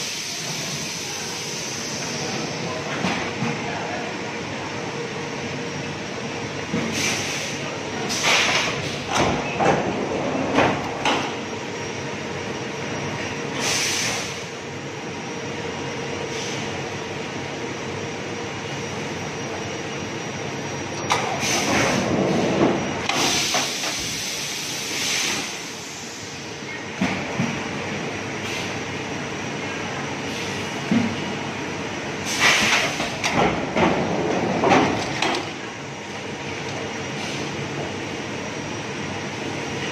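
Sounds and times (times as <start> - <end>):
tray rolling along rails: 30.8 - 39.9.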